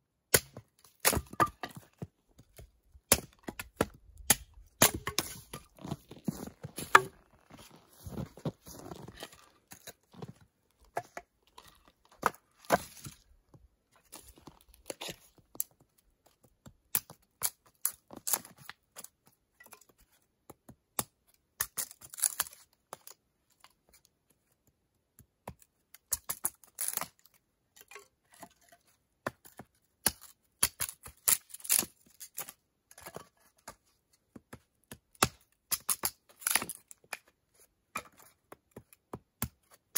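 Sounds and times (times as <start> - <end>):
hatchet chopping wood: 0.3 - 1.9, 3.1 - 5.8, 6.8 - 7.2, 29.2 - 32.5, 34.9 - 36.8.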